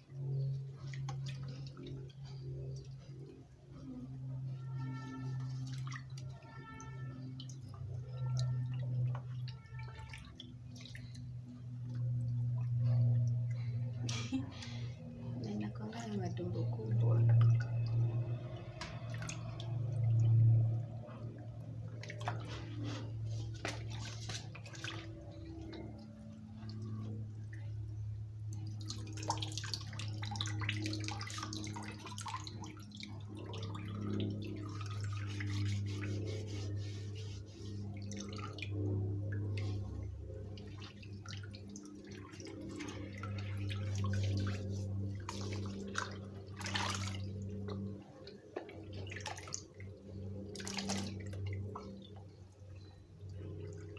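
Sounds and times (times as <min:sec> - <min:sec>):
steady low hum: 0:00.0 - 0:53.9
water dripping and splashing: 0:00.0 - 0:53.9
water sloshing in basin: 0:00.0 - 0:53.9.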